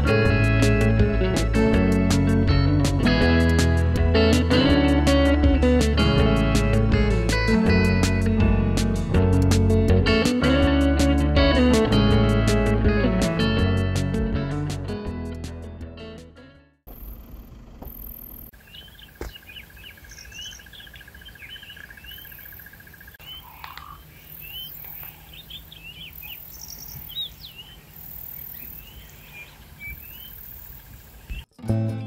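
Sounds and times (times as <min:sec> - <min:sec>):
background music: 0:00.0 - 0:16.6
faint outdoor background: 0:16.8 - 0:32.0
wild birds chirping: 0:16.9 - 0:31.5.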